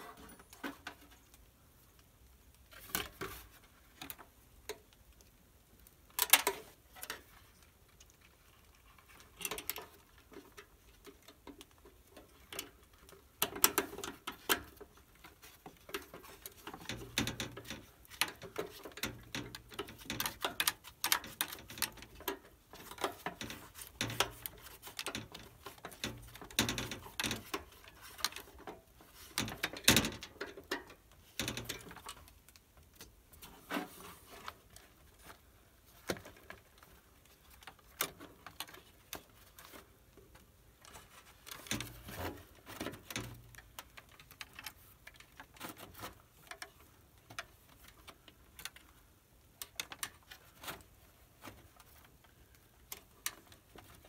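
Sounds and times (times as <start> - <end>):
hand tools clicking and rattling: 9.1 - 32.4.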